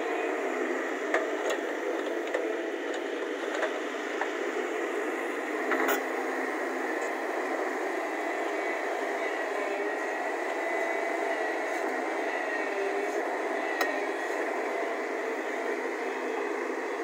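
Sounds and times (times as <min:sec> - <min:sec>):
excavator diesel engine running: 0:00.0 - 0:17.0.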